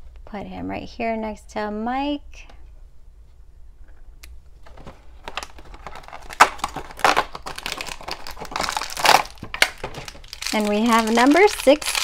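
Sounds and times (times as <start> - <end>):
toy packaging crinkling: 4.7 - 12.0.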